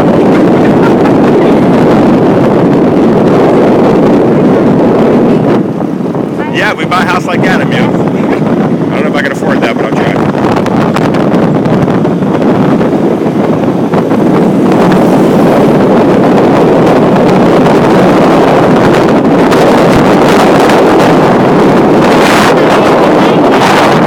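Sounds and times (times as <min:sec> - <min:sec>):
road and vehicle noise: 0:00.0 - 0:24.0
wind buffeting microphone: 0:00.0 - 0:24.0.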